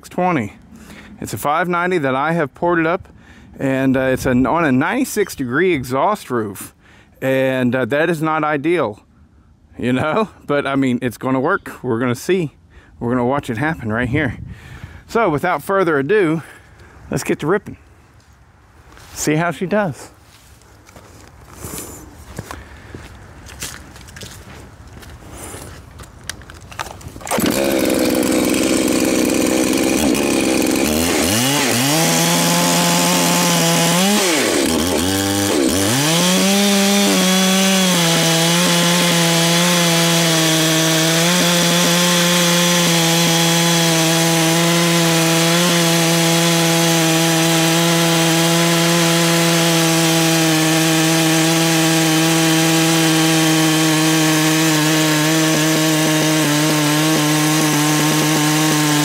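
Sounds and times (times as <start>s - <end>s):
chainsaw revving and cutting log: 27.2s - 59.0s.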